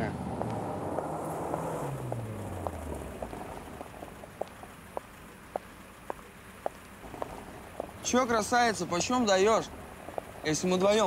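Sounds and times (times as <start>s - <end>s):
car engine passing: 0.0s - 11.0s
footsteps clicking on pavement: 0.4s - 8.1s, 9.9s - 10.6s.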